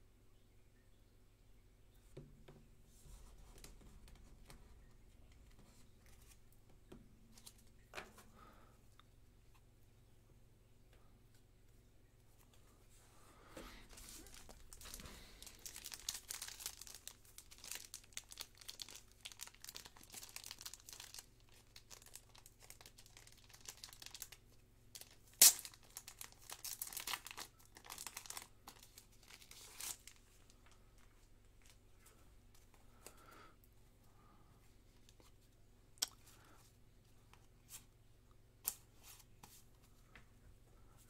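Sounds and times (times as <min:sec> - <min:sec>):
plastic bag crinkling: 0:13.9 - 0:31.8.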